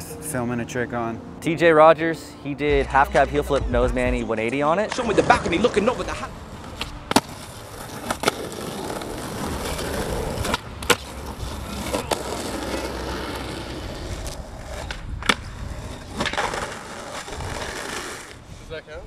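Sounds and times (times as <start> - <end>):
skateboard wheels on concrete: 4.2 - 19.0
skateboard clacks: 6.6 - 18.4.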